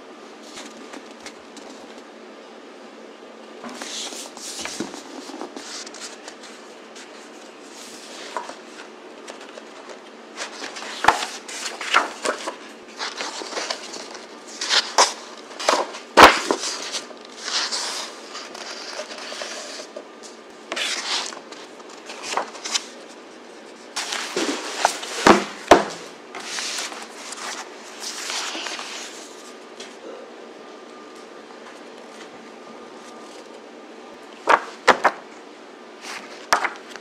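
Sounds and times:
book pages turning: 0.4 - 2.1, 3.7 - 25.8, 26.4 - 29.9.

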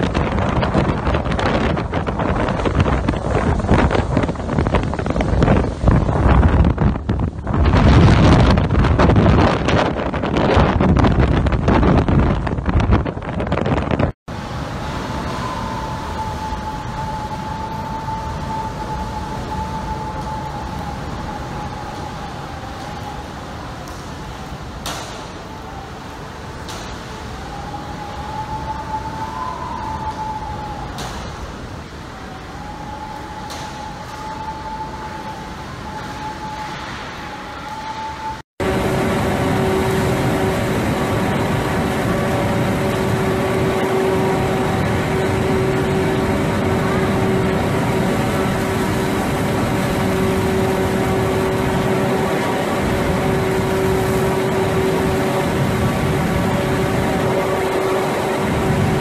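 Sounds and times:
driving rain: 0.0 - 59.0
rush of wind: 0.0 - 59.0
wind whistling: 0.0 - 59.0
steady tone: 14.3 - 59.0.

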